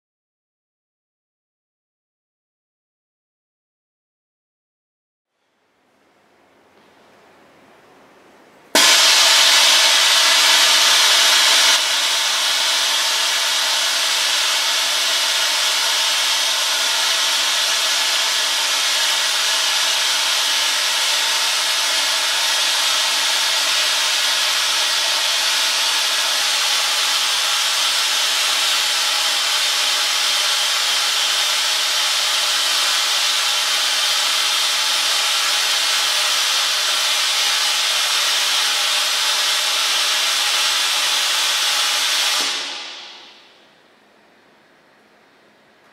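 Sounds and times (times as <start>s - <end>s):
blower air rushing hiss: 8.7s - 43.7s.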